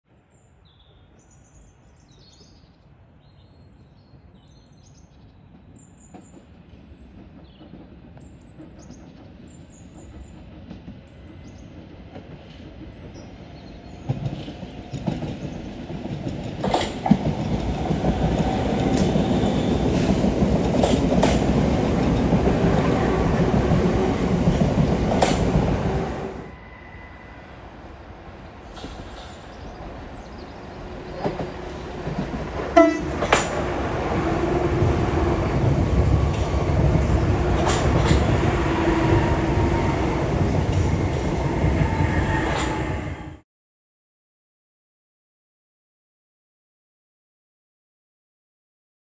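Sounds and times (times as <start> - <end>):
electric train passing: 6.4 - 43.4
train wheel clicks: 14.1 - 26.3, 31.2 - 33.7, 35.6 - 38.6.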